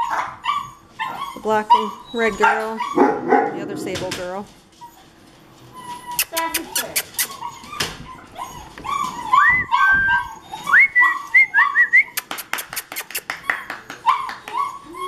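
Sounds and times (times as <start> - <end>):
puppies whining and yipping: 0.0 - 3.2, 4.6 - 15.0
sharp clicks or claps: 12.2 - 14.6.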